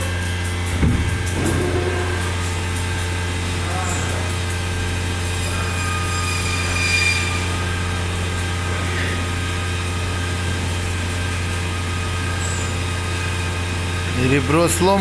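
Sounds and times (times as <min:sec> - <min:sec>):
low machine hum: 0:00.0 - 0:15.0
high squeal: 0:05.3 - 0:07.7.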